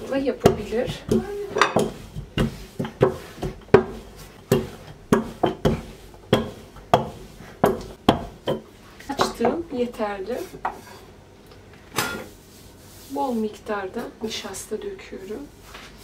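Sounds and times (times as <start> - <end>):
rolling pin knocking on counter: 0.4 - 9.6.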